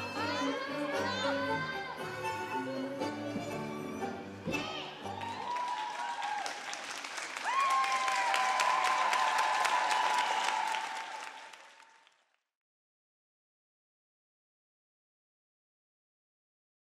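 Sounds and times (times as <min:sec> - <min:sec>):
audience applauding and cheering: 0:04.9 - 0:12.3.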